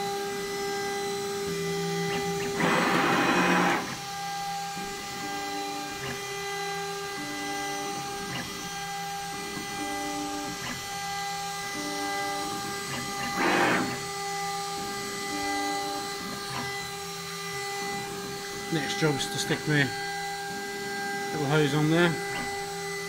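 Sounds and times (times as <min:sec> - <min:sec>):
steady electrical whine: 0:00.0 - 0:23.0
stepper motors whining: 0:01.9 - 0:14.7.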